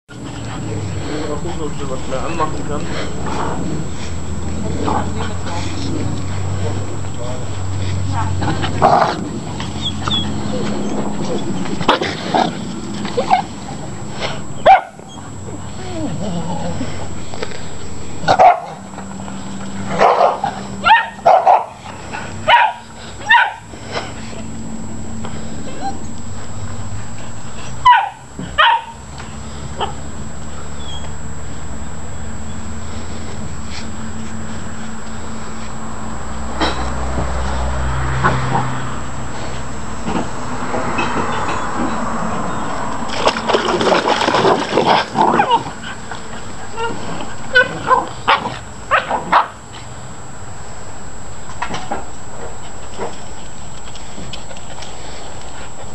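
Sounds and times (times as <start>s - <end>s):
dogs barking: 14.5s - 15.4s, 18.2s - 23.7s, 27.7s - 29.0s, 44.8s - 49.7s
water splashing and sloshing: 43.0s - 45.2s.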